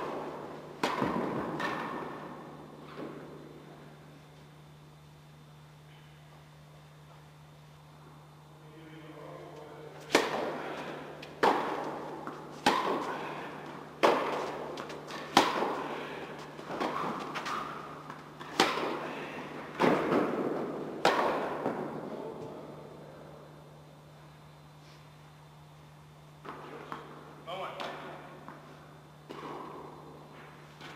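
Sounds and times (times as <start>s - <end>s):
tennis ball hits: 0.0s - 2.2s, 10.0s - 13.2s, 14.0s - 16.0s, 16.6s - 19.0s, 19.8s - 21.9s.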